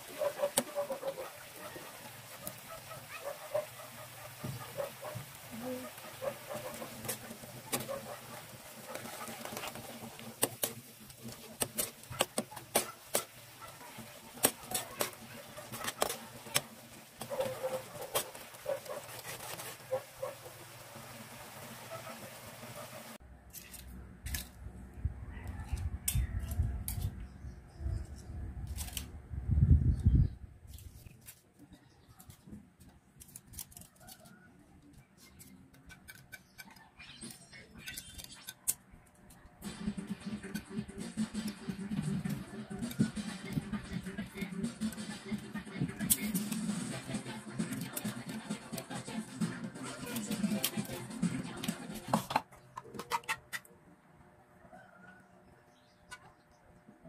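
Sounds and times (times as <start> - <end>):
metal spoon scraping frying pan: 4.6 - 20.2.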